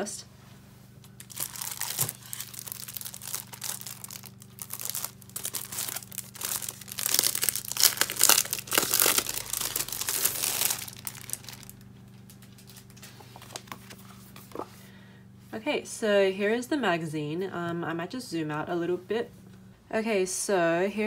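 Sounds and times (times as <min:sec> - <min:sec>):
plastic wrapping crinkling: 0:01.0 - 0:14.6.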